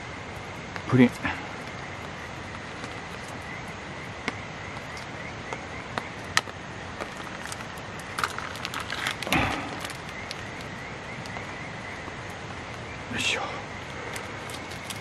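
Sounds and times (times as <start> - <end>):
steady background hiss: 0.0 - 15.0
plastic crinkling: 6.2 - 11.4, 13.8 - 15.0.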